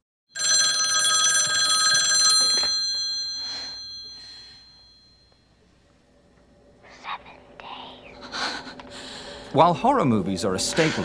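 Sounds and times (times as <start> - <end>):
telephone bell ringing: 0.3 - 5.6.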